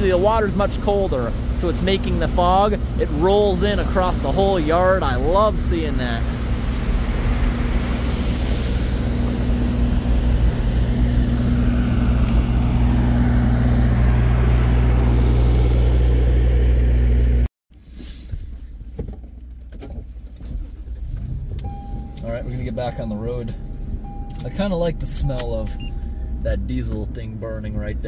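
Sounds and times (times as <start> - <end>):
water rushing through spillway: 0.0 - 10.4
diesel generator running: 0.0 - 17.5.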